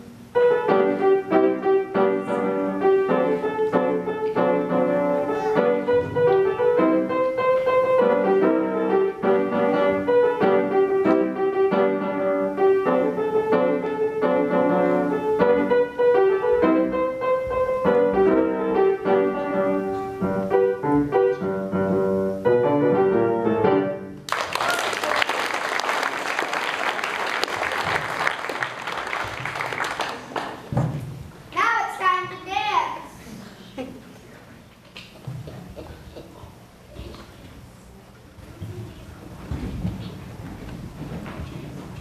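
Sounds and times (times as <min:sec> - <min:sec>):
piano playing a tune: 0:00.0 - 0:24.3
audience applauding: 0:24.3 - 0:30.7.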